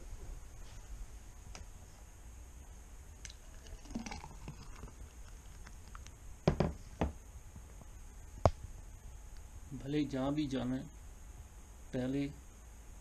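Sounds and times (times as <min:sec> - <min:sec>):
drink pouring into a glass: 0:03.3 - 0:05.6
pitcher knocking on table: 0:06.5 - 0:07.2.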